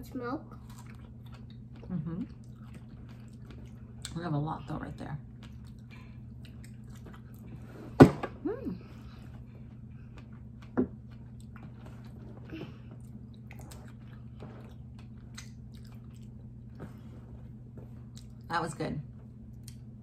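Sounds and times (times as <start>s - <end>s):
steady low hum: 0.0s - 20.0s
chewing: 0.6s - 4.2s, 5.3s - 7.6s, 9.2s - 17.1s, 17.8s - 18.5s.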